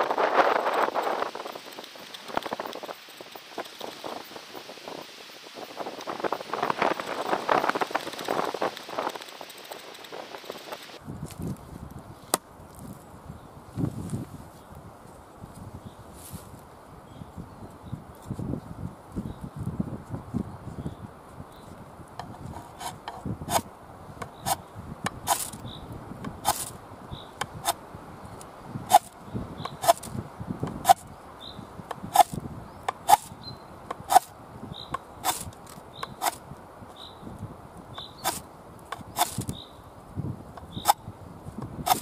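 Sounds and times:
ferro rod scraping strikes: 22.2s - 25.6s, 26.2s - 26.8s, 27.4s - 27.8s, 28.9s - 31.0s, 31.9s - 33.3s, 33.9s - 34.3s, 34.9s - 36.4s, 38.0s - 39.5s, 41.6s - 42.0s.

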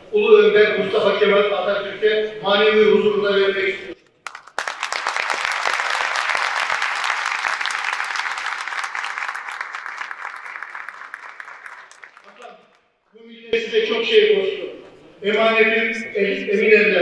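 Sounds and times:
audience applauding: 4.2s - 12.8s.

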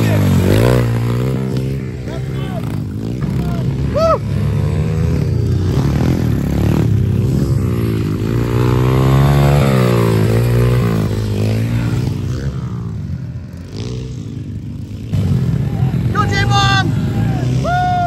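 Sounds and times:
pit bike engines revving: 0.0s - 18.0s.

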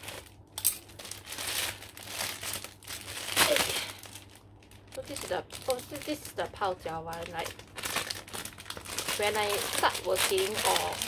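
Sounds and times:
plastic bag crinkling: 0.0s - 11.0s
scissors cutting plastic: 7.1s - 11.0s.

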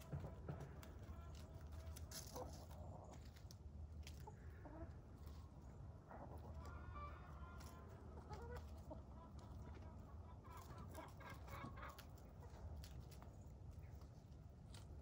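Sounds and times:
chickens clucking quietly: 0.0s - 15.0s.

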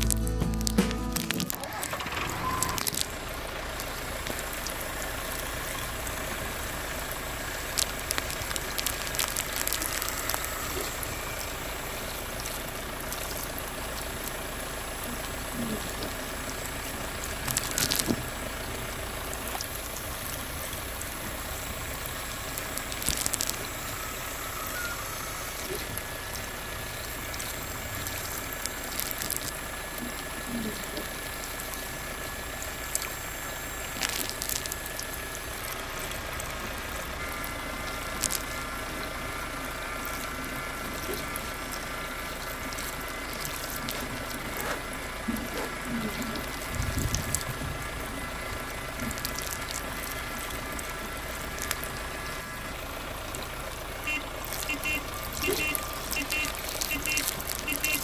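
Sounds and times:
scattered clicks: 0.0s - 3.2s, 7.7s - 11.5s
small electric motor whining: 1.1s - 48.7s.

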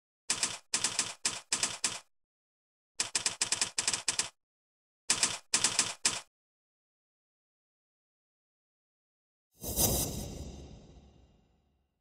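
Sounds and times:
typewriter key clicks: 3.0s - 4.4s.

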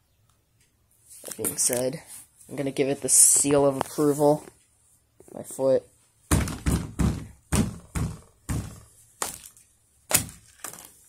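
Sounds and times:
foot stamping on wooden pallet: 6.3s - 9.5s.

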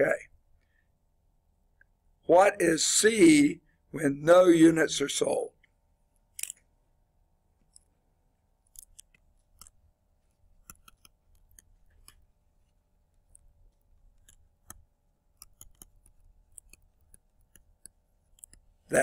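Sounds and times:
stylus tapping on tablet screen: 10.6s - 12.4s, 14.1s - 18.7s.

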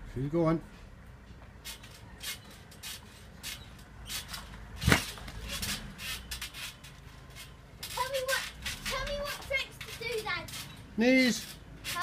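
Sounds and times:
trampoline springs creaking: 1.0s - 12.0s
trampoline mat thudding: 4.8s - 5.8s.

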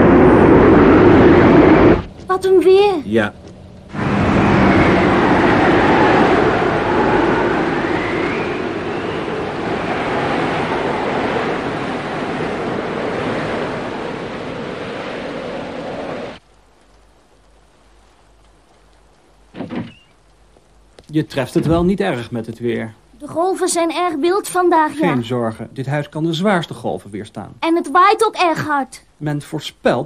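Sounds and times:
heavy waves rushing: 0.0s - 2.2s, 3.9s - 16.4s, 24.7s - 25.4s
howling wind: 0.0s - 19.3s.

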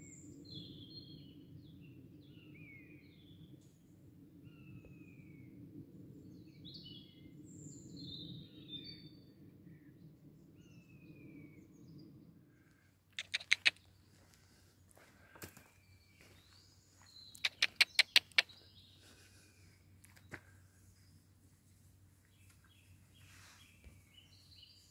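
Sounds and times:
songbirds chirping and whistling: 13.2s - 21.2s, 22.2s - 24.9s
rapid sharp clicks: 17.4s - 18.5s.

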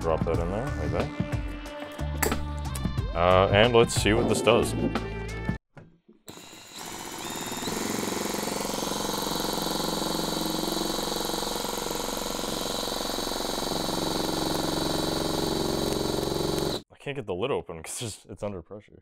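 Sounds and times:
cordless drill running pump: 6.3s - 16.8s.

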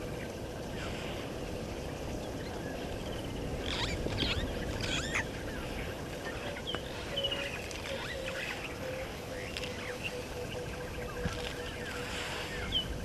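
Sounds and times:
birds chirping: 0.0s - 13.0s.

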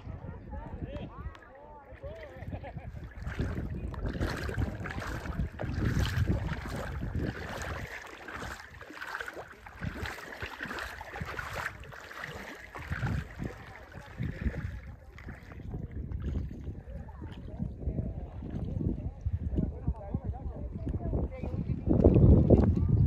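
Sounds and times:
gusty wind buffeting microphone: 0.0s - 1.3s, 2.0s - 23.0s
water rushing and splashing: 3.0s - 18.8s.

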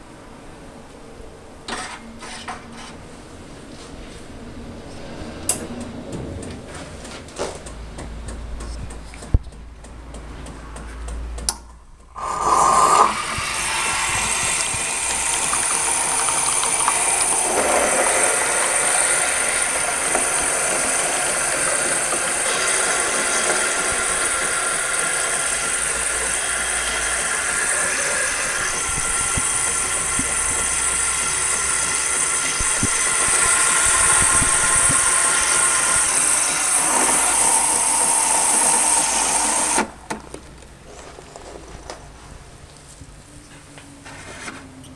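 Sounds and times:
milk frother steam hiss: 12.1s - 39.9s.

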